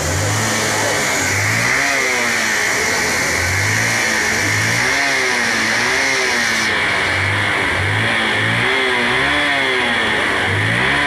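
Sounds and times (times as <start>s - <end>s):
motorcycle engine revving: 0.0s - 11.0s.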